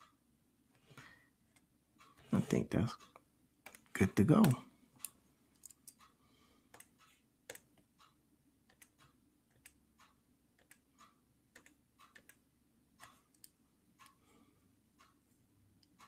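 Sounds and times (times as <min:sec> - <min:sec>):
computer mouse clicking: 0:03.0 - 0:06.1, 0:06.7 - 0:12.4, 0:13.0 - 0:14.2.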